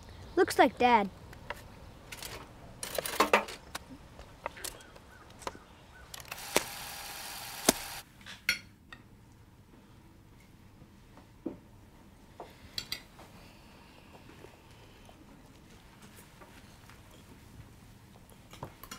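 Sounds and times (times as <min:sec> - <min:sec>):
sharp clicks: 0:06.1 - 0:08.0
steady hiss: 0:06.3 - 0:08.0.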